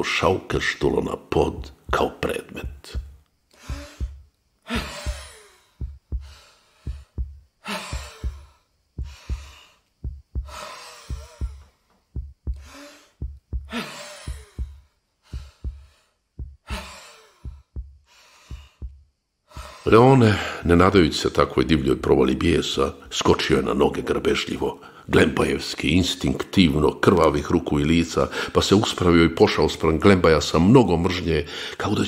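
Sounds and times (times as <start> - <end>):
low heartbeat thump: 1.5 - 19.8
man groaning breaths: 3.6 - 9.8, 10.4 - 11.7.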